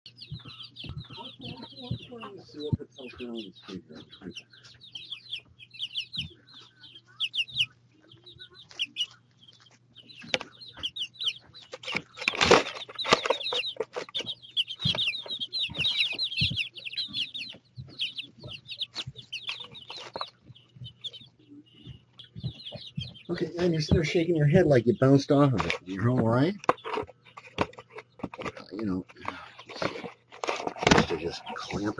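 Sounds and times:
chicks peeping: 0.1 - 31.9
chicks scratching in wood shavings: 0.1 - 31.9.

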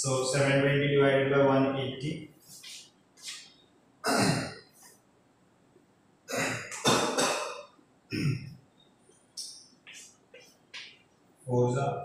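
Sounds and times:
man coughing: 4.0 - 4.6, 6.3 - 8.5.

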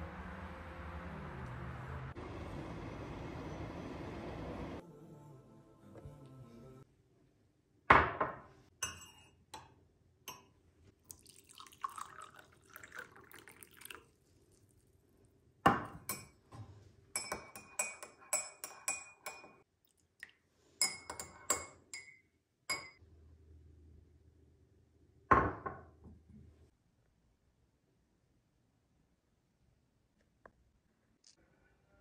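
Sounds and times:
spoon clinking against glass: 8.8 - 9.4, 17.1 - 19.6, 20.8 - 23.0
water pouring into glass mug: 11.0 - 14.9.

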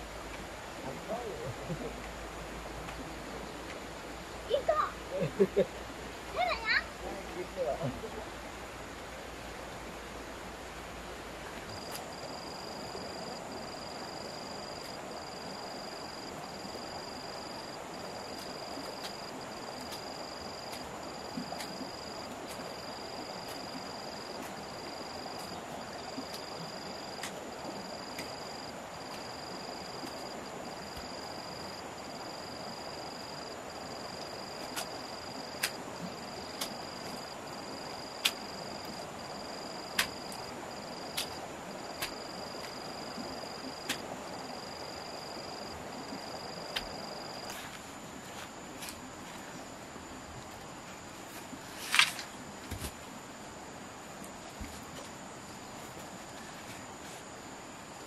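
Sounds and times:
outdoor ambient hiss: 0.0 - 58.0.

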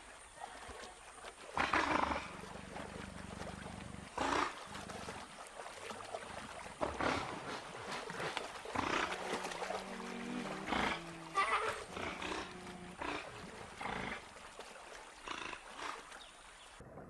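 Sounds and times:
harsh animal calls: 8.8 - 14.2.

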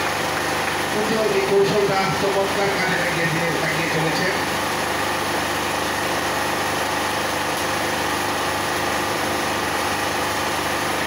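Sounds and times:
steady engine-like drone: 0.0 - 11.0.

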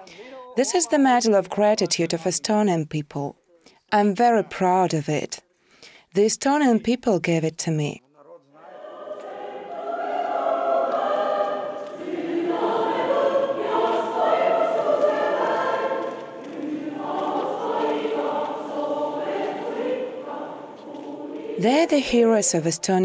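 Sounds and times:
choir singing: 8.6 - 23.0.

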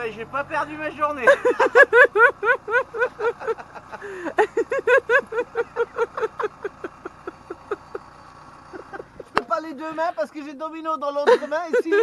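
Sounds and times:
woman laughing: 1.2 - 10.2, 11.3 - 12.0.

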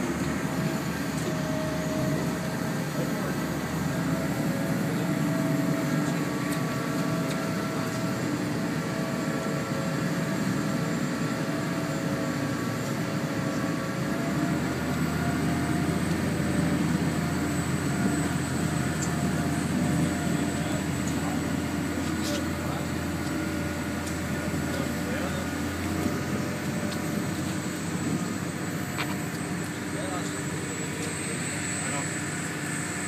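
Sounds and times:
ferry engines humming: 0.0 - 33.0.

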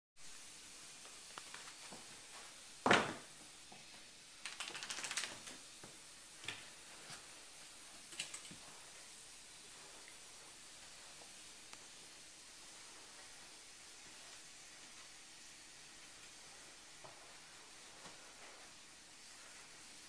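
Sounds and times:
dog claws clicking on hard floor: 4.4 - 6.7.

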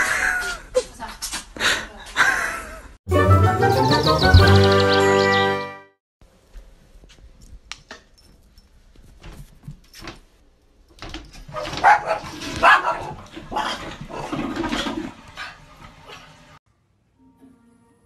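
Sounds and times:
small dog barking: 11.6 - 13.2.

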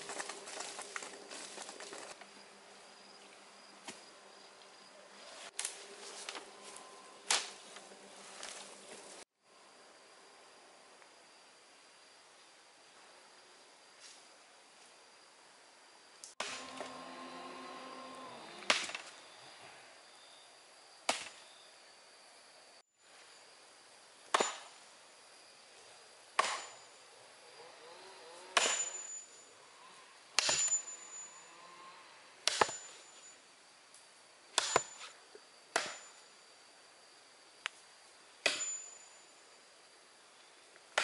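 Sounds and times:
hand tool striking wood: 18.6 - 19.1, 24.3 - 24.7, 26.4 - 26.8, 28.6 - 29.0, 30.4 - 30.9, 32.4 - 33.0, 34.6 - 36.1, 38.4 - 38.8
high metallic ring: 28.6 - 33.4, 38.5 - 39.5.

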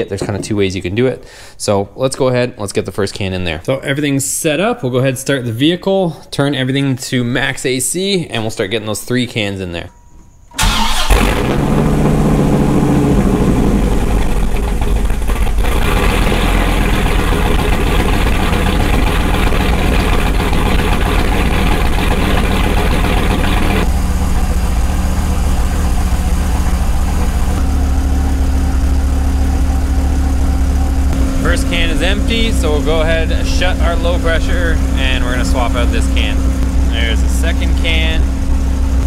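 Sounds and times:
car engine idling: 10.6 - 39.0.

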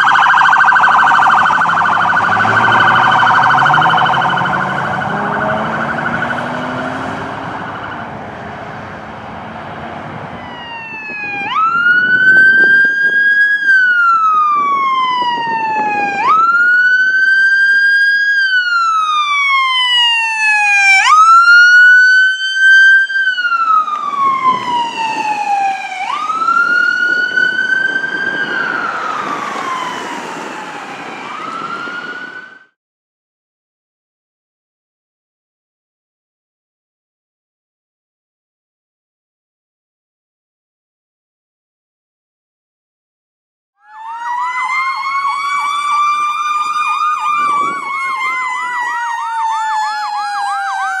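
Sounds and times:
ambulance siren wailing: 0.0 - 9.0, 9.8 - 32.8, 43.8 - 51.0
engine and tyres rumbling: 0.0 - 19.0.

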